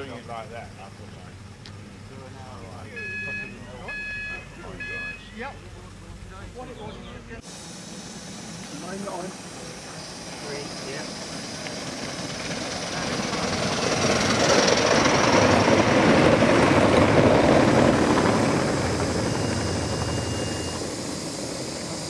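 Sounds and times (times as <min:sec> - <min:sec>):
model train running past: 0:07.4 - 0:22.0.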